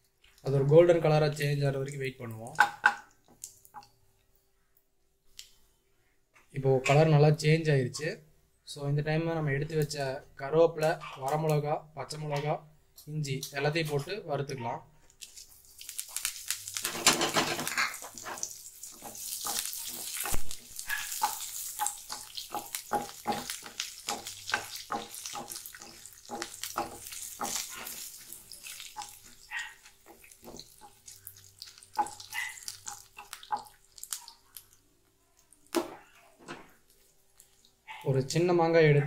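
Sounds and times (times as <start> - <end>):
oil crackling and popping: 15.0 - 37.9
food sizzling in hot oil: 15.2 - 34.8.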